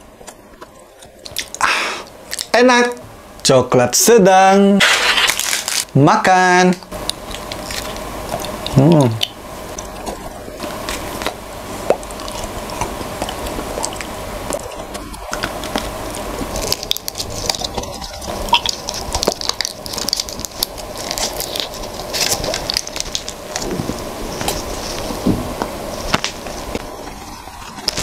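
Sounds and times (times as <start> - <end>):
chewing chocolate bar: 0.2 - 2.5, 6.8 - 25.1
foil wrapper crinkling: 4.8 - 6.0, 14.5 - 25.3, 25.9 - 28.0.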